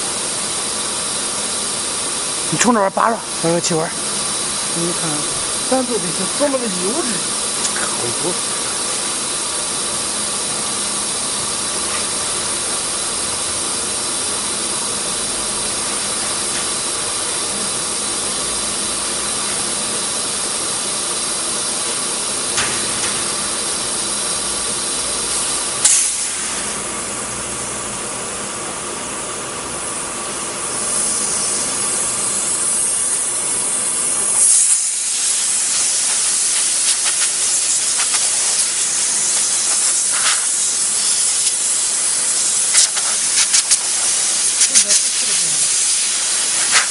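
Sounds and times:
wood router hum and whine: 0:00.0 - 0:25.8
compressed air gun hissing: 0:00.0 - 0:46.9.

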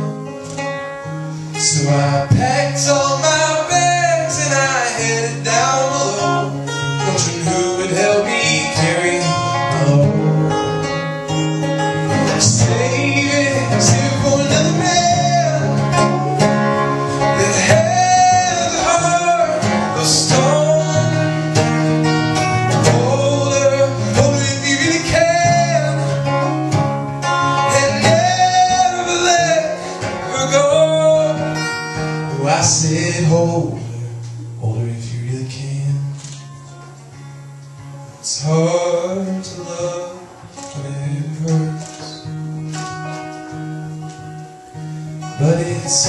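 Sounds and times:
strummed acoustic guitar: 0:00.0 - 0:46.0
man singing: 0:01.5 - 0:36.6, 0:38.2 - 0:42.4, 0:45.2 - 0:46.0.

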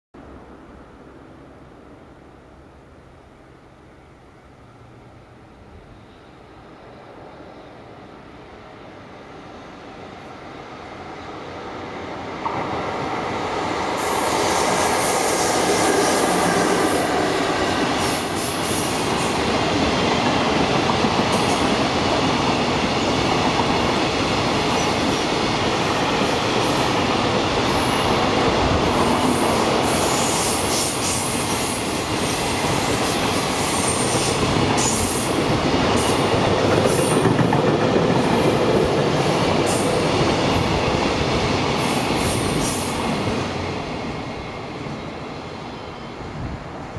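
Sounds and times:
train wheels rumbling on rails: 0:09.4 - 0:46.9.

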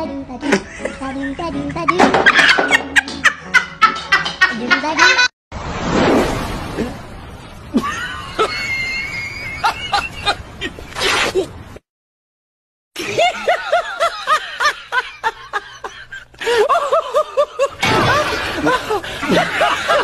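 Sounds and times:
person laughing high-pitched: 0:00.4 - 0:05.3.

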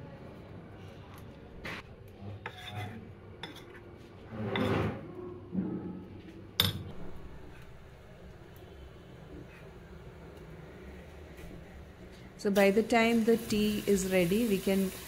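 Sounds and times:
spoon scraping batter in bowl: 0:02.4 - 0:05.0.

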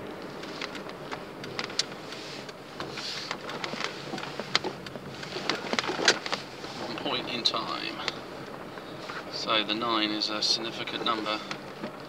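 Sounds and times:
car cabin road and engine noise: 0:00.0 - 0:12.0
light clicks and rattles: 0:00.2 - 0:12.0.

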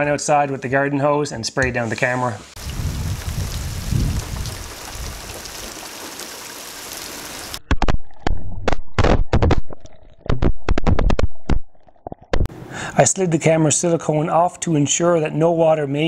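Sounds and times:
hose water spray hissing: 0:02.0 - 0:07.6.

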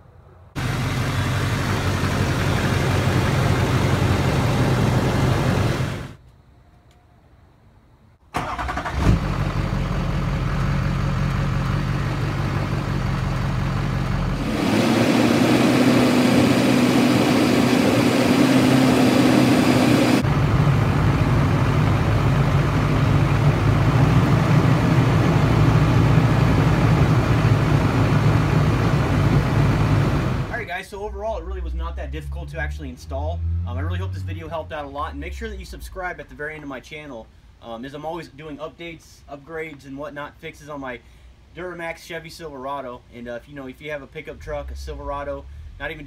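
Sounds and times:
diesel engine running: 0:00.6 - 0:06.2, 0:08.4 - 0:35.0.

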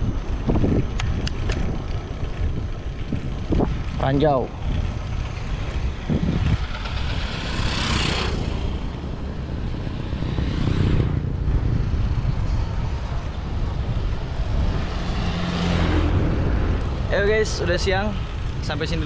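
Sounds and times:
bike rolling on asphalt: 0:00.0 - 0:19.0
wind rushing over microphone: 0:00.0 - 0:19.0
whoosh: 0:06.1 - 0:12.2.

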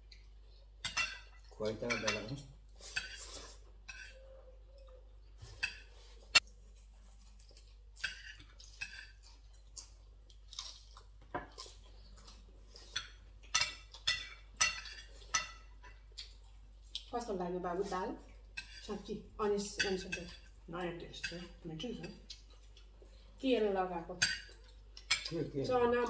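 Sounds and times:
people chewing: 0:00.0 - 0:23.4, 0:24.1 - 0:26.0
cutlery clinking on plates: 0:00.8 - 0:04.2, 0:12.8 - 0:16.0.

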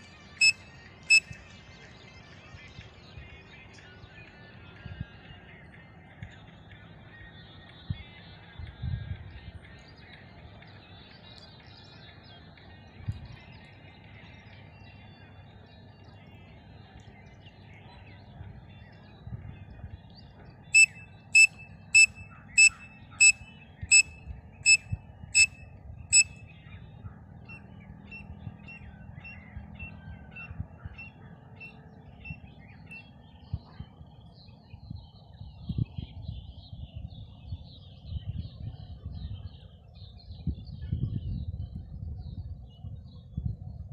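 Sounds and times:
sharp high whistles: 0:20.8 - 0:24.8
faint bird chirping: 0:20.8 - 0:41.2.

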